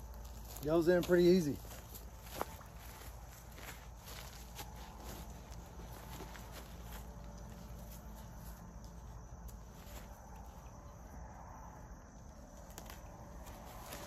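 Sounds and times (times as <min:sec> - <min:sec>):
insects chirping: 0:00.0 - 0:14.0
mesh fabric rustling: 0:01.6 - 0:10.6, 0:12.4 - 0:14.0.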